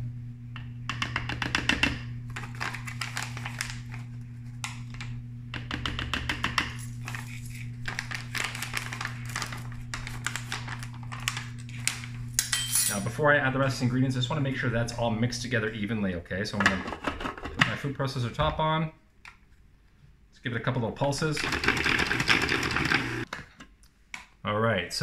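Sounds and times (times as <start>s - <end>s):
paper bag rustling: 2.3s - 4.6s, 6.8s - 12.2s
metal spoon scooping and scraping: 7.0s - 8.0s.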